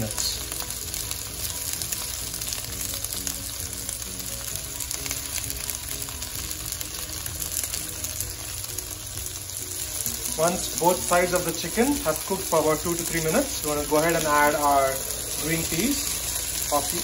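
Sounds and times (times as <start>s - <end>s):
chicken sizzling in oil: 0.0s - 17.0s
faint background music: 0.0s - 17.0s.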